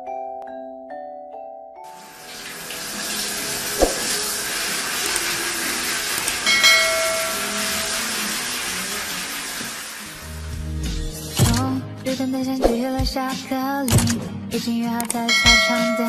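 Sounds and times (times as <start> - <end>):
running water in a tiled bath: 1.9 - 10.7
chiming music notes: 5.2 - 8.2, 15.3 - 16.0
sharp click: 13.9 - 14.2, 15.0 - 15.9.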